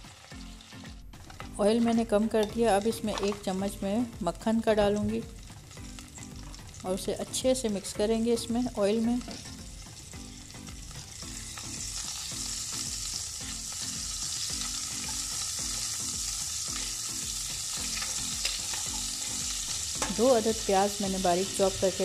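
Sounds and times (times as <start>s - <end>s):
butter sizzling in oil: 0.0s - 22.0s
metal spoon stirring in pan: 1.2s - 3.6s, 17.6s - 20.3s.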